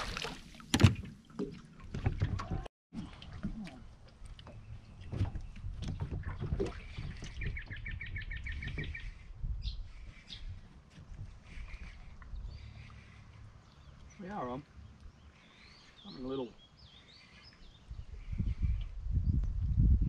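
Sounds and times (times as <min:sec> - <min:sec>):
water lapping: 0:00.0 - 0:19.0
wind noise: 0:05.0 - 0:12.6, 0:17.8 - 0:20.0.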